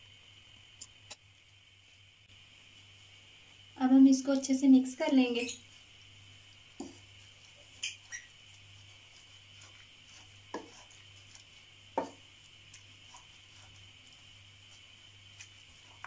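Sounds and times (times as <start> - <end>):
faint steady hum: 0.0 - 16.0
spoon stirring in milk: 5.3 - 16.0
spoon knocking and scraping pan: 6.7 - 16.0.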